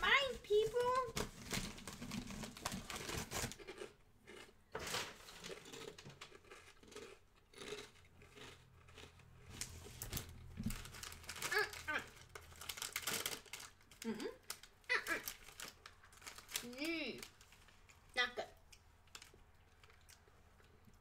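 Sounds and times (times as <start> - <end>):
chewing crunchy chips: 2.0 - 21.0.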